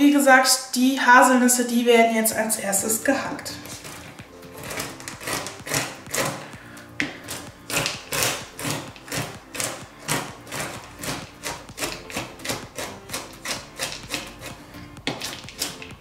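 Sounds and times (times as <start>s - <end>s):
knife chopping on cutting board: 3.6s - 16.0s.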